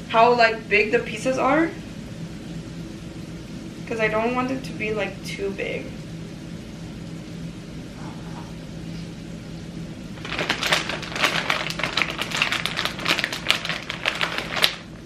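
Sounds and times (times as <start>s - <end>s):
plastic bag crinkling: 10.2s - 15.0s.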